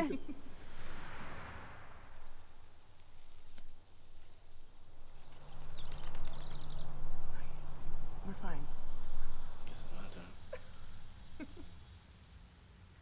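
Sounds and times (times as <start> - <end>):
high insect drone: 0.0 - 13.0
bird chirps: 2.1 - 12.0
low steady tone: 4.0 - 11.8.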